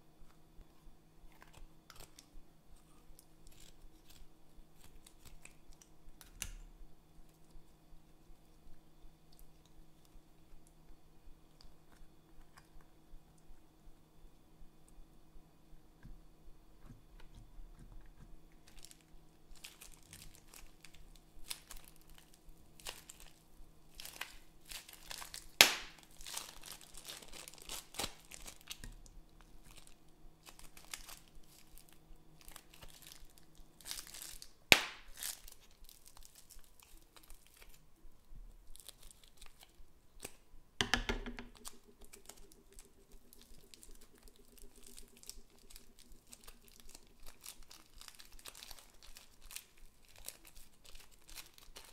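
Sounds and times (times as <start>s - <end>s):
plastic bag crinkling: 18.6s - 37.8s, 38.7s - 39.8s, 41.5s - 51.9s
foam beads crunching: 18.7s - 28.8s, 29.6s - 37.8s, 41.6s - 51.9s.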